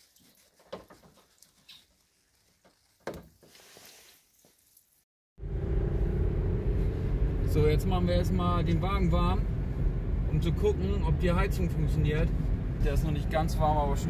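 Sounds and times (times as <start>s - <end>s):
small ticks and rustles: 0.0s - 5.0s
car engine and road noise: 5.4s - 14.0s.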